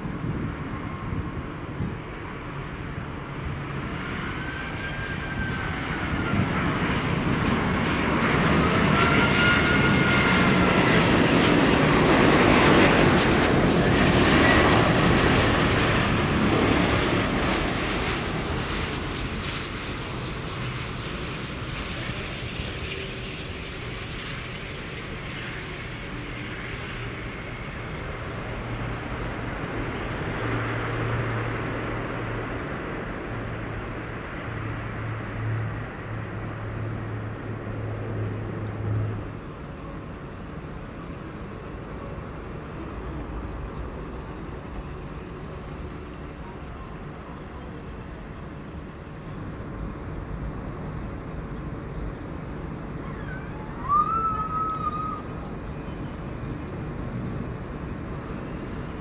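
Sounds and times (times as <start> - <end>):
jet airliner engine noise: 0.0 - 59.0
high engine whines: 48.1 - 59.0.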